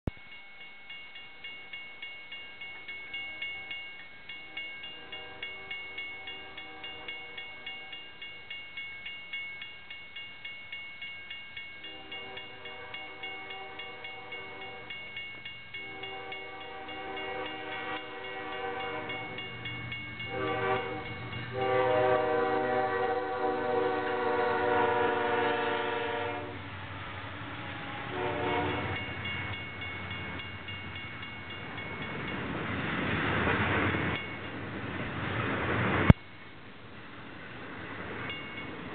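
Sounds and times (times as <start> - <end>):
railroad crossing bell ringing: 0.0 - 26.6, 27.9 - 32.7, 34.1 - 34.8, 38.2 - 38.9
freight train rumble: 0.0 - 38.9
locomotive horn blasts: 4.5 - 8.0, 11.8 - 14.9, 15.8 - 19.4, 20.2 - 26.6, 28.1 - 29.0.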